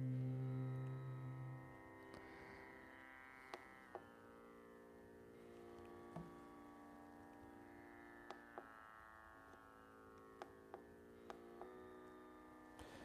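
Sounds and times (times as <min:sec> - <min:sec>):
plucked notes: 0:00.0 - 0:01.8
electronic tanpura drone: 0:00.0 - 0:13.0.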